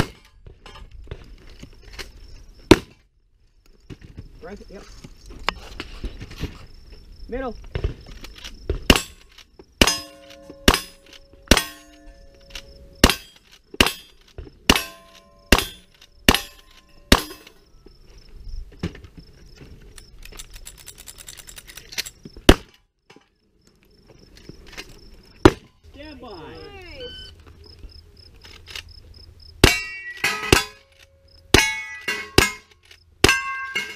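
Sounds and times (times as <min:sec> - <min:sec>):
bullet ringing steel target: 0:08.9 - 0:09.2, 0:09.8 - 0:17.6, 0:29.6 - 0:30.9, 0:31.5 - 0:33.9
rifle shots: 0:09.8 - 0:11.9, 0:13.0 - 0:14.1, 0:14.7 - 0:17.4.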